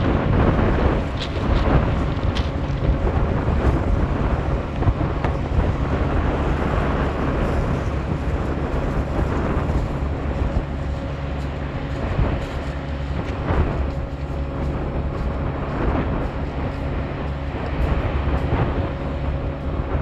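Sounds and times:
surf: 0.0 - 20.0
tractor diesel engine running: 0.0 - 20.0
wind buffeting microphone: 0.0 - 20.0.

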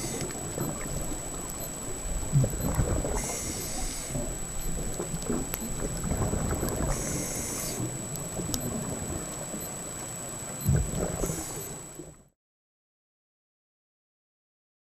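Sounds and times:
scattered clicks: 0.0 - 1.8, 2.4 - 9.8
underwater rumbling and gurgling: 0.0 - 12.3
faint high whine: 0.0 - 12.4.

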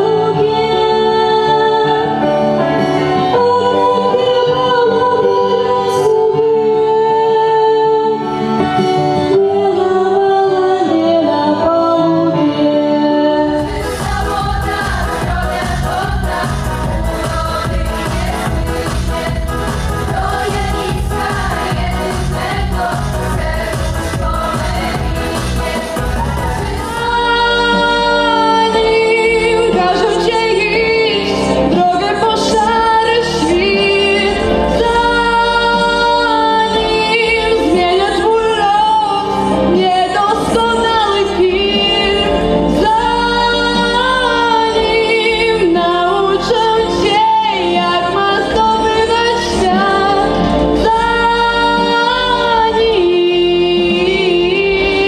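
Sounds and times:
woman singing: 0.0 - 8.4, 9.2 - 55.0
instrumental accompaniment: 11.7 - 55.0.

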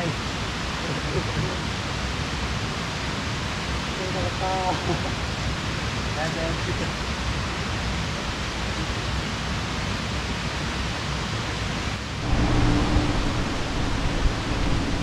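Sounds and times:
outdoor rushing noise: 11.9 - 15.0
low steady hum: 12.0 - 15.0.

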